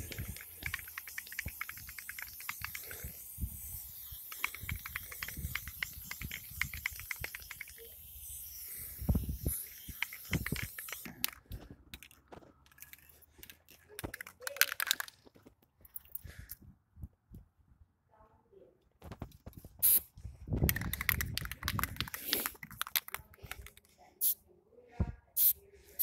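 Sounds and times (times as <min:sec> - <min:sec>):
rapid clicking: 0:00.0 - 0:03.3, 0:04.0 - 0:07.8, 0:20.6 - 0:23.8
spray paint can hissing: 0:00.0 - 0:11.4, 0:19.8 - 0:24.4, 0:25.4 - 0:26.0.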